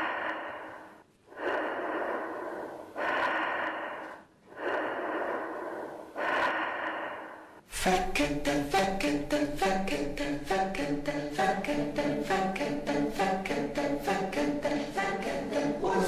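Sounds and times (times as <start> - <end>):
breathy whooshes: 0.0 - 7.7.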